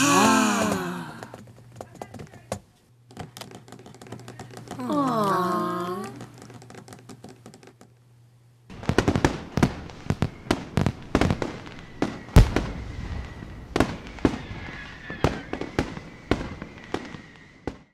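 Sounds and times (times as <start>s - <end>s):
fireworks bangs and crackles: 3.2s - 5.1s, 5.9s - 7.8s, 8.7s - 17.9s.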